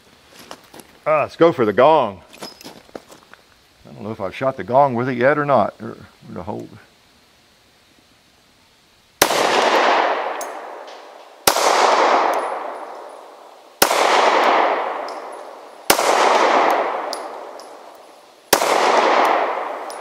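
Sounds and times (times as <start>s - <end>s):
pistol shots with echo: 9.2s - 20.0s.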